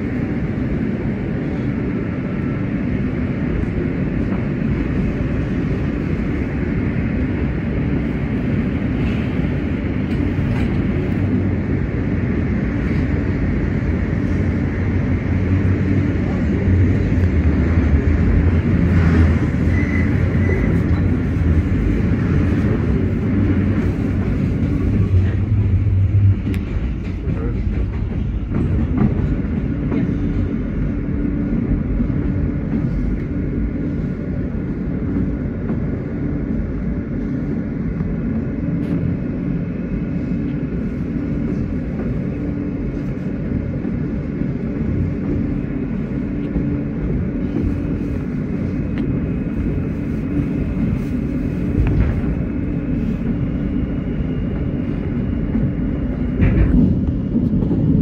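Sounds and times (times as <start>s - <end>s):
train wheels and motors rumbling: 0.0s - 58.0s.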